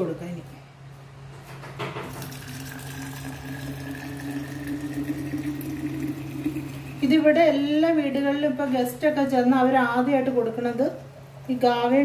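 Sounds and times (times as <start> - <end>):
coffee pouring into a flask: 2.1 - 7.0.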